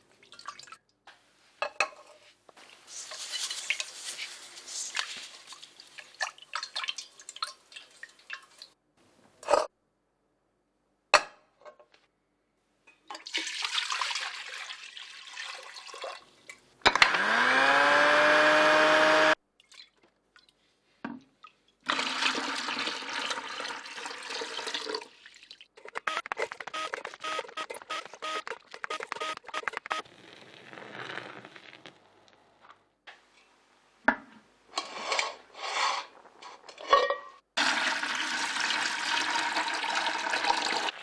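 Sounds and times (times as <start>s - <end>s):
liquid pouring: 13.1s - 16.2s, 21.9s - 25.8s, 37.6s - 41.0s
blender motor running: 16.9s - 19.4s
foamy milk pouring into cup: 30.1s - 32.0s.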